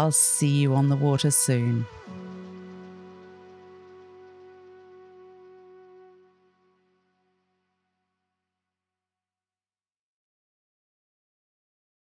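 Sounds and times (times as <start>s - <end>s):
closing music: 0.0s - 7.7s.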